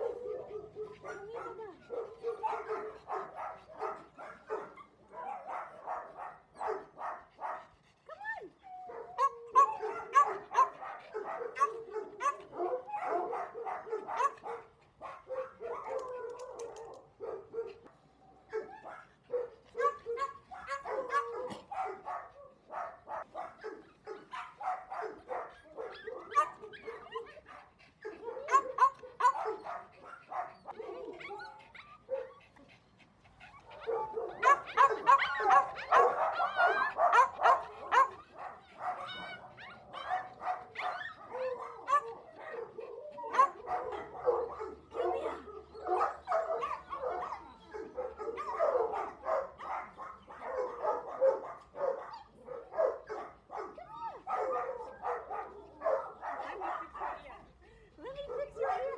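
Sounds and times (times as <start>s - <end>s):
small dogs yapping: 18.5s - 57.3s.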